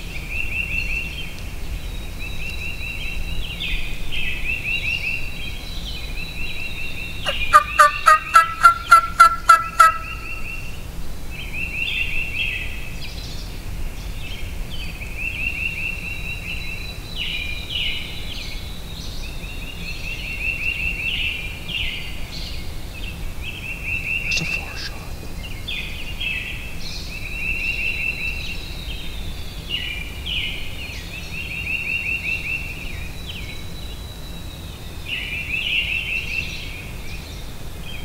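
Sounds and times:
turkey gobbling: 7.2 - 10.4.

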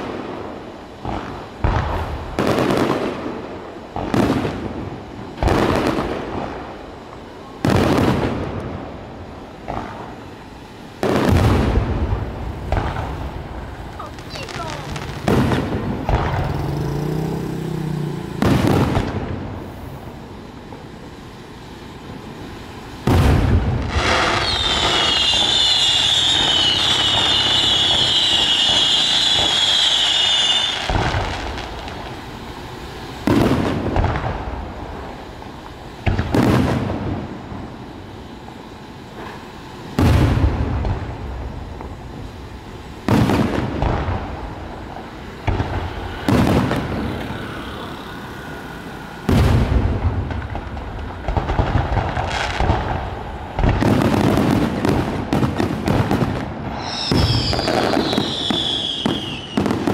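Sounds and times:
firework shells booming: 0.0 - 59.9
shrill wavering whistling: 24.4 - 30.8, 56.8 - 59.6.

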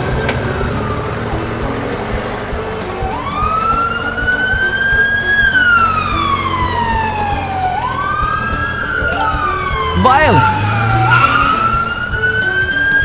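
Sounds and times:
background music with steady beat: 0.0 - 13.0.

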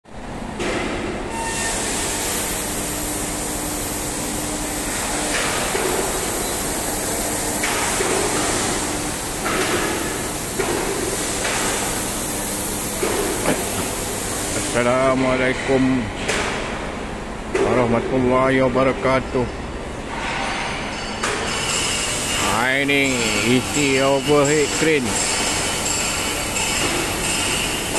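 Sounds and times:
factory machinery hum: 0.1 - 27.9.

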